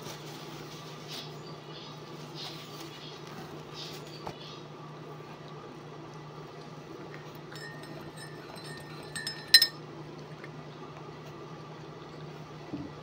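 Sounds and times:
spoon clinking in ceramic mug: 7.5 - 9.8.

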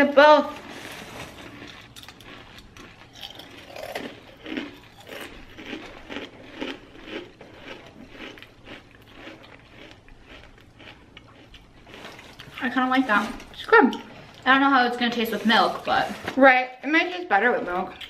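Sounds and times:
mouth crunching cereal: 0.5 - 12.9.

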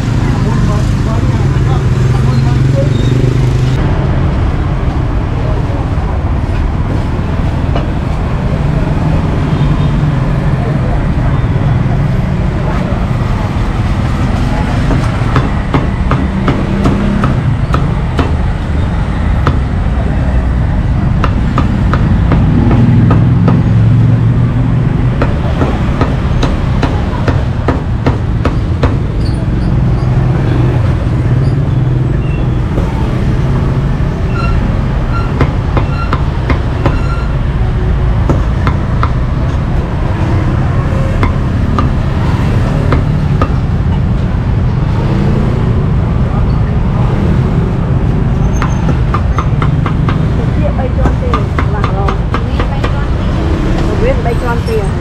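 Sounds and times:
street traffic rumble: 0.0 - 55.0
cleaver chopping meat: 41.1 - 42.0.

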